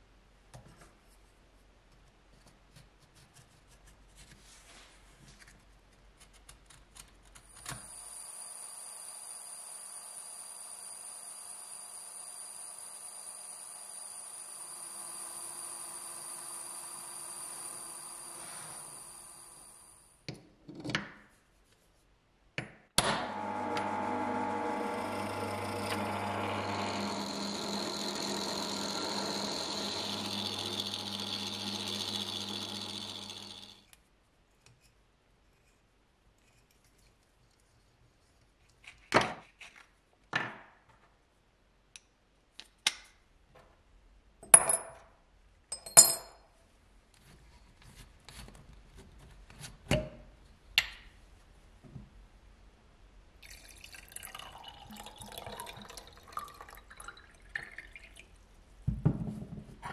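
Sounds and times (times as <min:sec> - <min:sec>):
power tool motor hum: 0:07.9 - 0:19.9, 0:23.1 - 0:33.8
power tool starting knock: 0:23.0 - 0:33.8.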